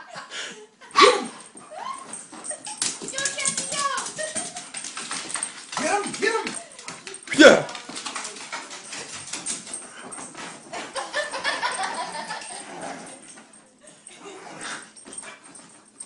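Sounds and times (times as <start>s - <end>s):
dog moving about: 1.4s - 13.9s.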